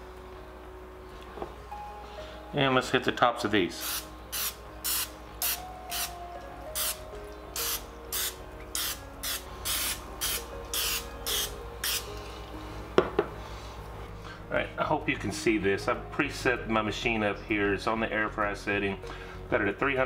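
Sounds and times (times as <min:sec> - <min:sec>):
aerosol spray hissing in spurts: 0:03.8 - 0:07.0, 0:07.6 - 0:12.2.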